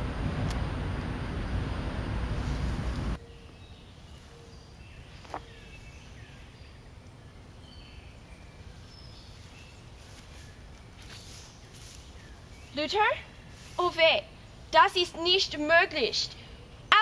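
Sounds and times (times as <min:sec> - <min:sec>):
loud rushing noise: 0:00.0 - 0:03.2.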